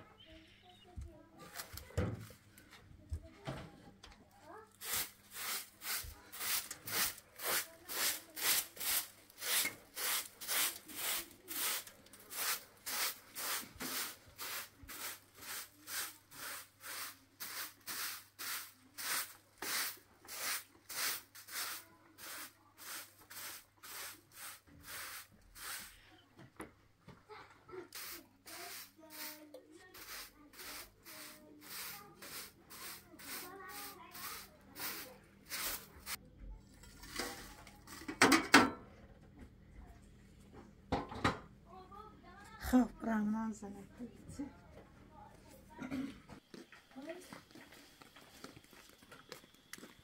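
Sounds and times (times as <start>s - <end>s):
broom sweeping floor: 4.5s - 26.2s, 27.8s - 36.2s.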